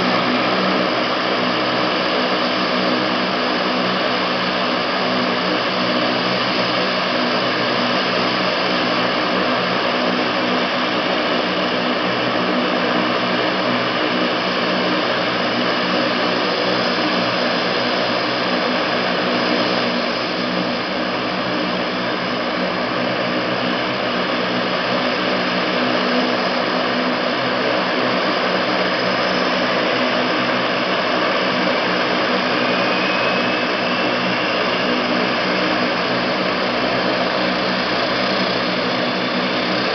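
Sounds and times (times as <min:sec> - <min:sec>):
turboprop engines droning: 0:00.0 - 0:39.9.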